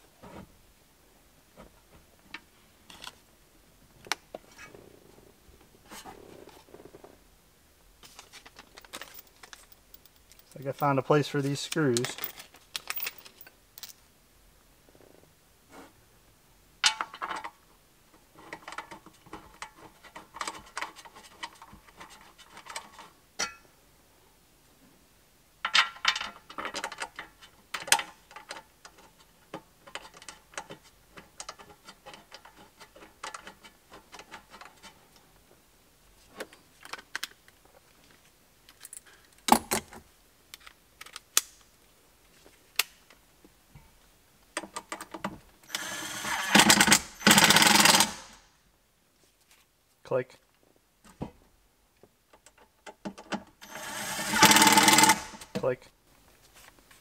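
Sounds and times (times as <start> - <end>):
screws rattling against metal: 8.7 - 13.9, 45.7 - 48.4, 53.6 - 55.5
cordless screwdriver running: 45.7 - 48.2, 53.6 - 55.4.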